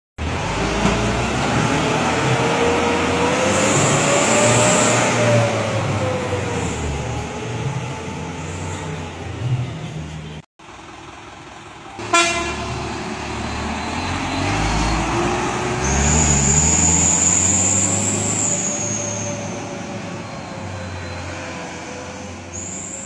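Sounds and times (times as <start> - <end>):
truck engine accelerating: 0.2 - 23.0
truck horn toot: 12.0 - 12.9.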